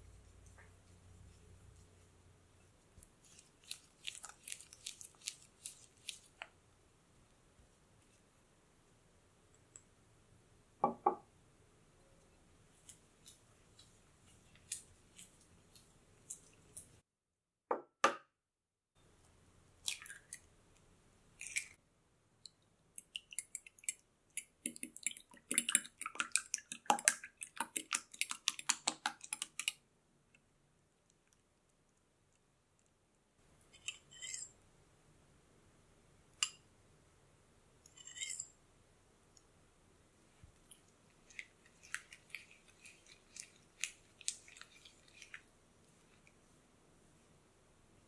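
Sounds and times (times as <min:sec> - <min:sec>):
egg beaten against glass: 0:23.0 - 0:29.8
spatula scraping glass bowl: 0:37.9 - 0:38.5.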